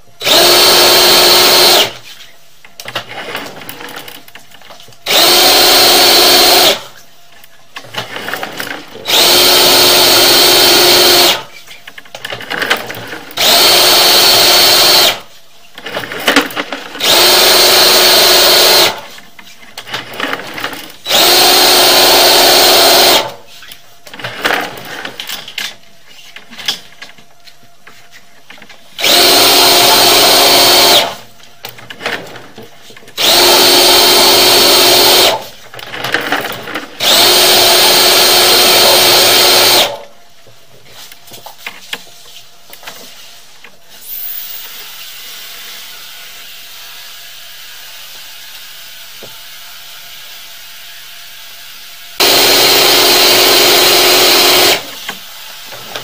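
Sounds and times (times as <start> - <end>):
drain cleaning machine motor whine: 9.0 - 11.5, 17.0 - 19.0, 21.0 - 23.4, 29.0 - 31.3, 33.2 - 35.4, 37.0 - 40.1, 52.2 - 56.0.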